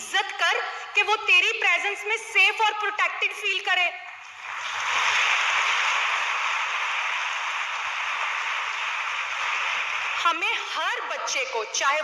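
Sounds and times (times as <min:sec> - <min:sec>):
audience applause: 0:04.4 - 0:10.8.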